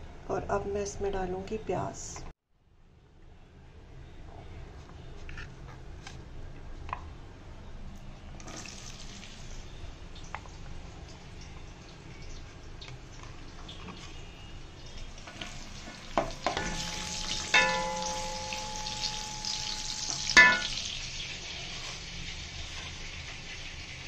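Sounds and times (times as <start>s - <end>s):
onions sizzling in hot oil: 8.4s - 24.0s
sharp knocks against pan: 16.2s - 20.8s
ringing tone: 16.5s - 20.9s.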